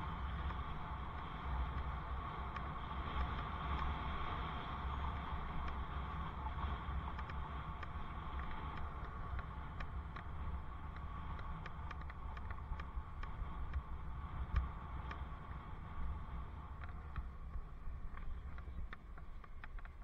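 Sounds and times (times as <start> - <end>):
wind rumbling on microphone: 0.0 - 20.0
light clicks: 6.9 - 13.9, 16.7 - 20.0.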